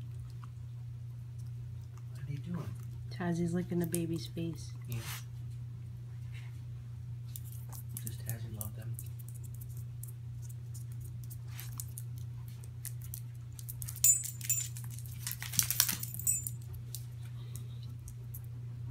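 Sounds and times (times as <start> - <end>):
steady low hum: 0.0 - 18.9
metal dog tags jingling: 13.8 - 16.7.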